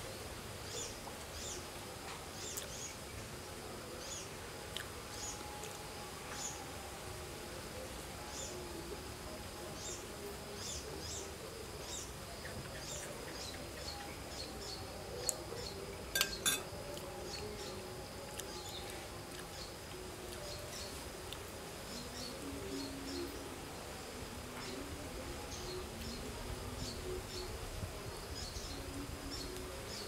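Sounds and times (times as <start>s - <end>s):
birds chirping: 9.8s - 21.0s.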